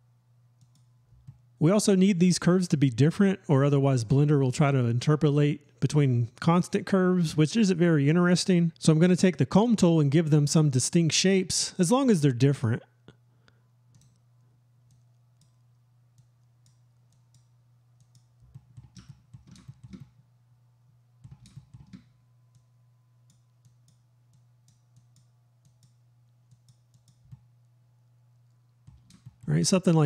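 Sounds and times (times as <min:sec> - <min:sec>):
low steady hum: 0:00.0 - 0:30.0
computer mouse clicking: 0:00.6 - 0:01.4, 0:13.9 - 0:14.2, 0:14.9 - 0:20.2, 0:21.2 - 0:22.7, 0:23.3 - 0:27.5, 0:28.4 - 0:29.4.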